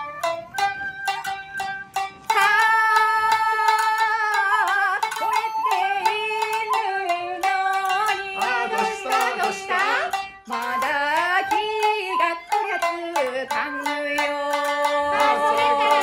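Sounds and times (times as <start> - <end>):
breathy bamboo flute: 0.0 - 2.6, 4.5 - 7.4
plucked shamisen: 0.0 - 16.0
woman singing: 2.3 - 16.0.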